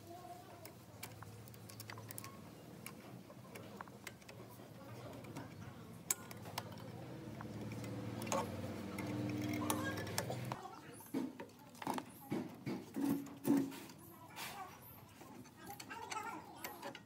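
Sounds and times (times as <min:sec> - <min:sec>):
light clicks and taps: 0:00.5 - 0:14.0.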